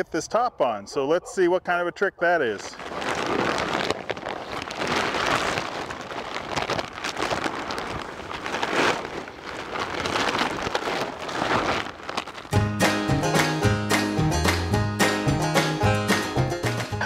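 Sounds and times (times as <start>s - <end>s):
plastic cover rustling and crinkling: 2.6s - 12.6s.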